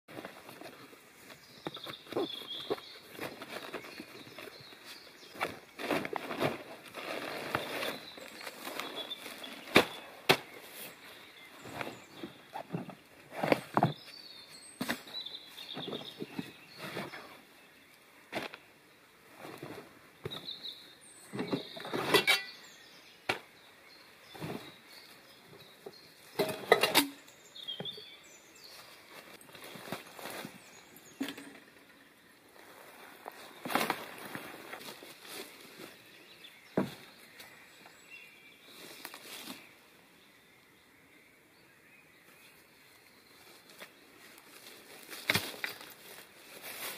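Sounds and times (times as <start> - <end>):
tarp rustling and crinkling: 0.1 - 17.4, 19.3 - 20.6, 24.2 - 25.2, 28.6 - 31.5, 32.6 - 37.6, 38.7 - 39.7, 43.4 - 46.9
backpack rustling: 0.4 - 11.0.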